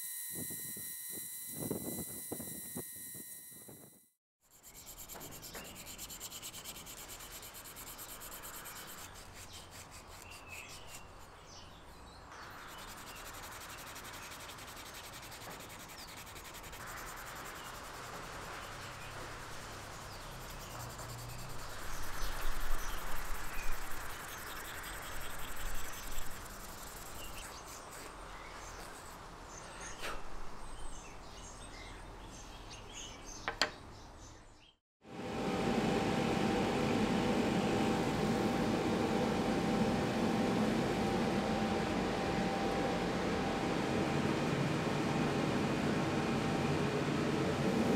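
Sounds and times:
sandpaper rubbing on wood: 4.4 - 11.5, 12.6 - 29.2.

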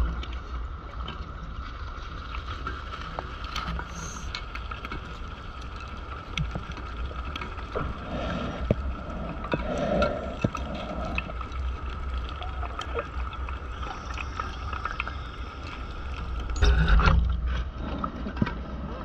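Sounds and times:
underwater low rumble: 0.0 - 19.0
exhaled breath bubbles rushing: 7.8 - 16.8.

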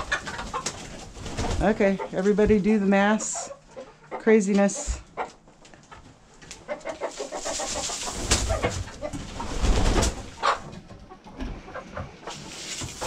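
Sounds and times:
chickens clucking: 0.0 - 13.0
wing-flapping and scuffling: 0.1 - 2.6, 7.0 - 10.4.

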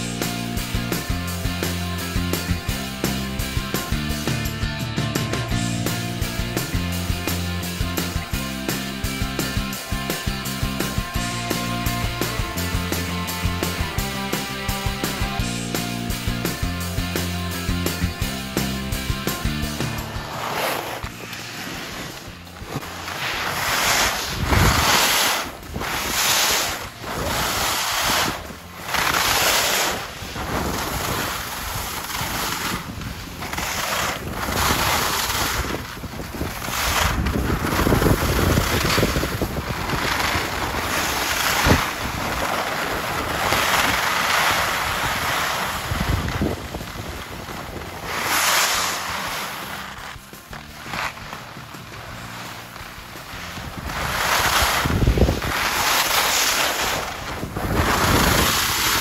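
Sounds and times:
wind buffeting microphone: 24.0 - 29.2, 30.0 - 48.3, 53.5 - 55.9, 56.8 - 59.0.

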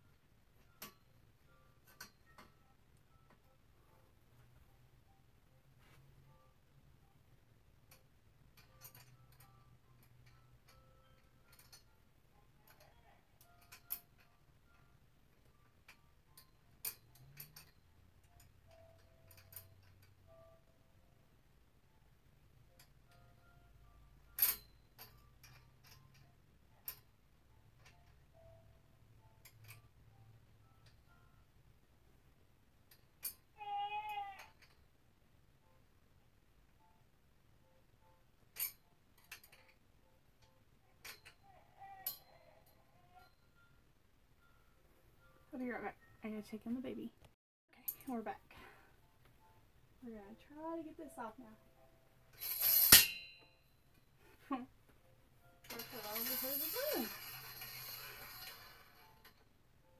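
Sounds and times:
light metal clicks and clinks: 7.9 - 12.0, 15.8 - 20.2, 38.5 - 39.8
baby crying faintly: 33.5 - 34.6, 41.4 - 43.4.

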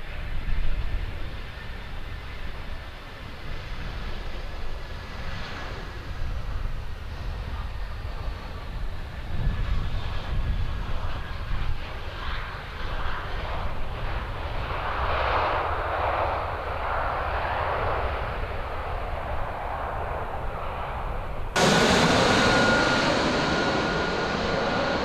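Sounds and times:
jet engine rumble: 0.0 - 25.0
rushing engine noise: 21.6 - 25.0.

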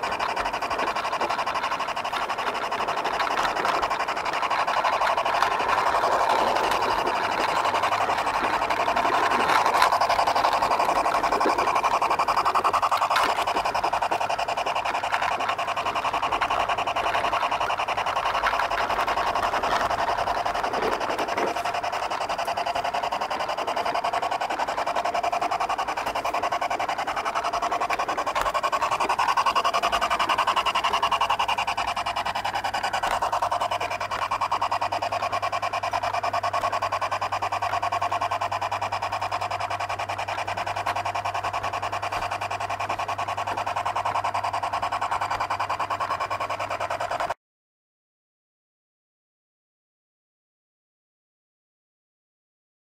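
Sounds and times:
fine clicking of wheels: 0.0 - 47.4
model locomotive motor whine: 0.0 - 47.4.

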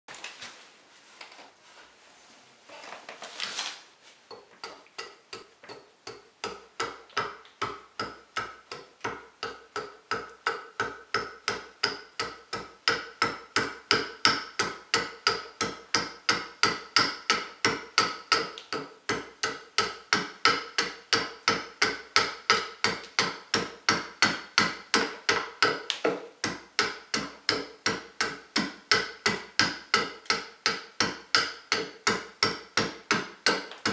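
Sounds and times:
rustling of wood handling: 0.1 - 5.0
hatchet chopping wood: 4.3 - 33.9.

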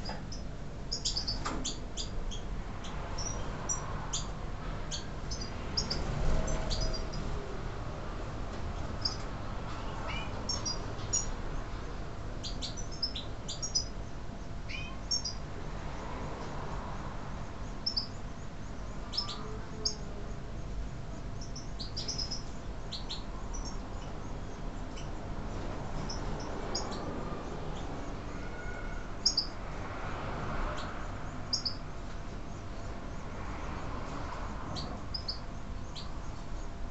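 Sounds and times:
goldfinches chirping: 0.0 - 7.3, 8.8 - 9.3, 10.0 - 11.4, 12.4 - 15.4, 17.7 - 20.4, 21.4 - 25.3, 26.0 - 28.0, 29.2 - 29.6, 30.7 - 31.9, 34.7 - 36.6.

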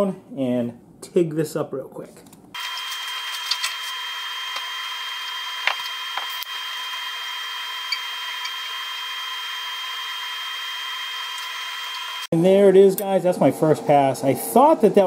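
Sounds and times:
welding arc hiss and whine: 2.6 - 12.3.

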